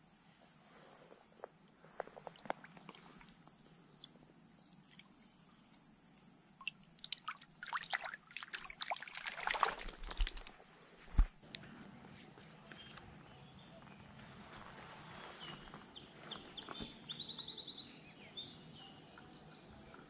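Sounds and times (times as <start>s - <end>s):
stream water splashing: 6.6s - 10.6s.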